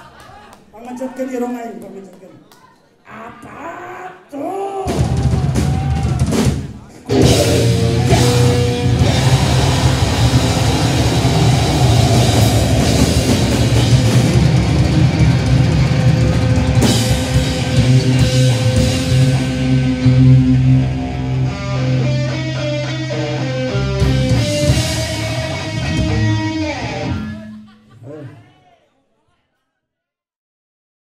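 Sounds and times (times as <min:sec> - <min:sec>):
drum kit with cymbals: 0:04.9 - 0:20.6, 0:24.0 - 0:26.5
bass guitar: 0:07.1 - 0:27.6
distorted electric guitar: 0:07.1 - 0:27.7.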